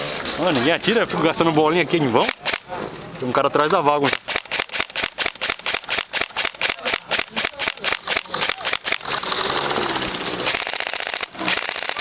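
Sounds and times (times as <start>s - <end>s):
airsoft rifle firing: 2.2s - 2.7s, 4.0s - 12.0s.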